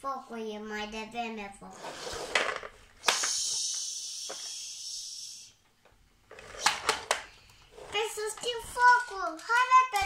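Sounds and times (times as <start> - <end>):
steady hiss: 2.0 - 5.7.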